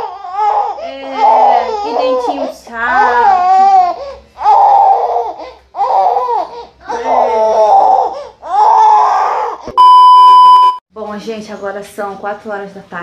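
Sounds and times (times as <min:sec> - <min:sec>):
test-pattern tone beep: 0:09.8 - 0:10.8.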